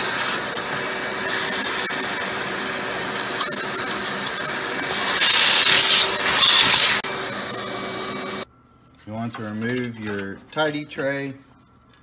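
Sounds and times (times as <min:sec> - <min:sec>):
vacuum cleaner sucking: 0:00.0 - 0:08.4.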